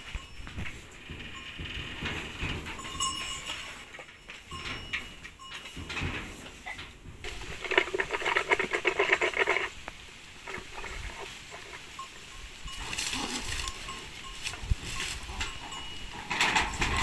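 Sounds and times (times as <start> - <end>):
farm animal calling: 6.3 - 17.0.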